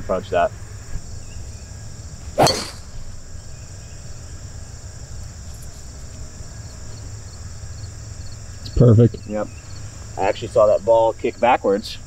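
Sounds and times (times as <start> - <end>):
golf club striking ball: 2.4 - 3.2.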